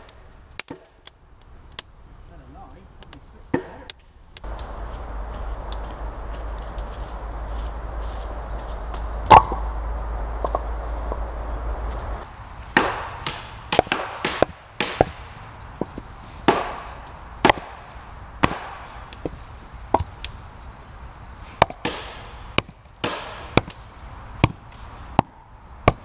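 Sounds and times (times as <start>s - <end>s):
axe chopping wood planks: 3.5s - 4.6s, 8.9s - 9.7s, 12.8s - 15.2s, 15.8s - 17.8s, 18.4s - 20.2s, 21.6s - 23.8s, 24.4s - 26.0s.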